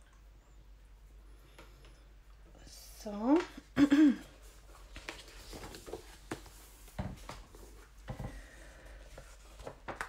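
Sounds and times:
paper rustling: 4.4 - 8.0, 8.9 - 10.0.

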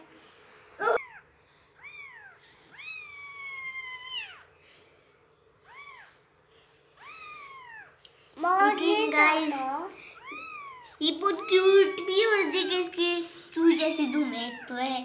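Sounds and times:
kitten mewing: 0.8 - 1.2, 10.2 - 12.8.

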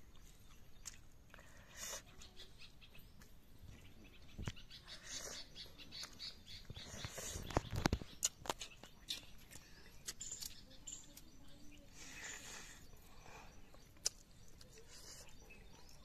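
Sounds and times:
faint bird chirps: 0.0 - 16.0
person eating by hand: 0.0 - 16.0.

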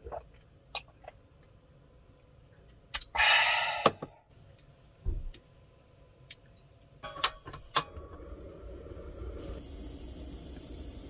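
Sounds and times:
gas burner hissing: 7.6 - 11.0.

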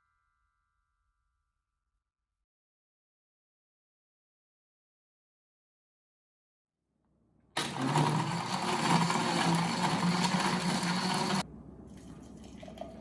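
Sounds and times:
blender running: 7.6 - 11.4
thick smoothie pouring into jar: 7.6 - 13.0.

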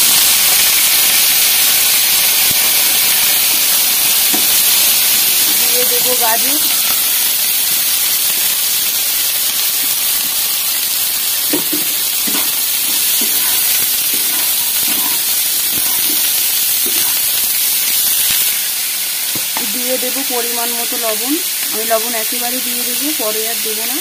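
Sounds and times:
vegetables sizzling in hot oil: 0.0 - 24.0
spatula scraping and knocking pan: 11.4 - 17.3.

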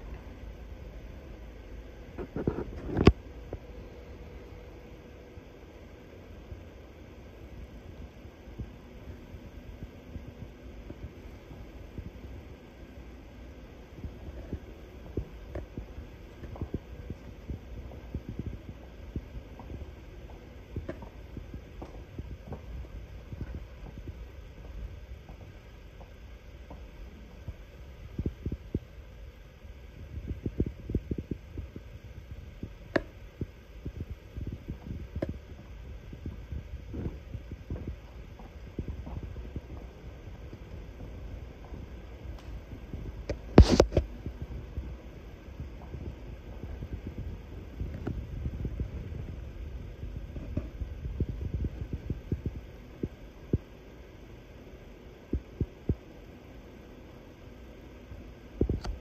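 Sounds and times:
footsteps on wooden floor: 21.8 - 22.8
camera handling rumble: 43.2 - 44.1.

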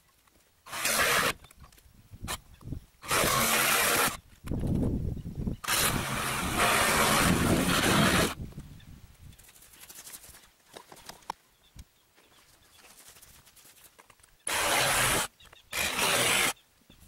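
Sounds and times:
reciprocating saw cutting: 0.7 - 1.4, 3.0 - 4.2, 5.6 - 8.4, 14.4 - 16.6.

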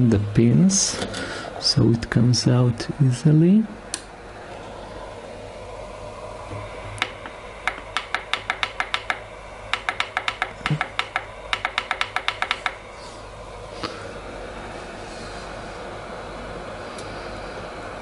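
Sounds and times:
low steady hum: 0.0 - 18.0
rapid sharp clicks: 7.0 - 12.8.

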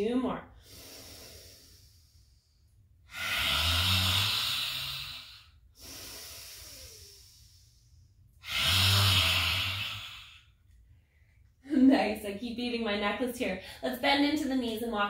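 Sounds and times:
inhale through the nose: 0.6 - 10.6
woman forcefully exhaling: 3.1 - 7.8, 8.4 - 10.5.

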